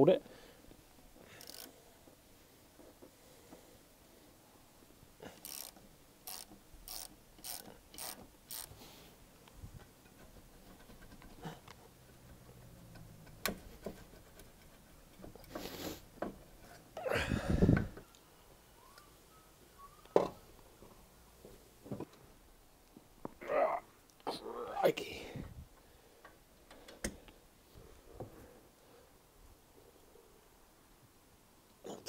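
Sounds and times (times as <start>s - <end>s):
ratchet wrench clicking: 1.4s - 1.7s, 5.4s - 8.7s.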